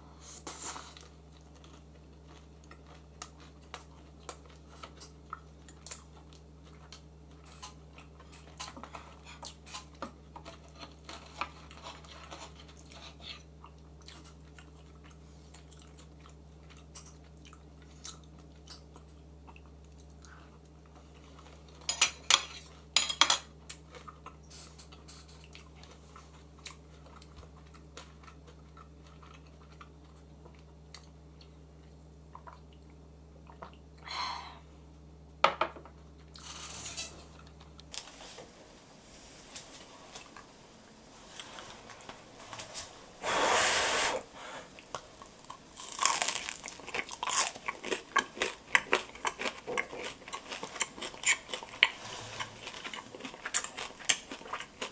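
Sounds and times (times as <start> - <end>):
faint low hum: 0.0 - 54.9
chewing crisp food: 0.5 - 21.9, 23.6 - 33.9, 44.8 - 54.9.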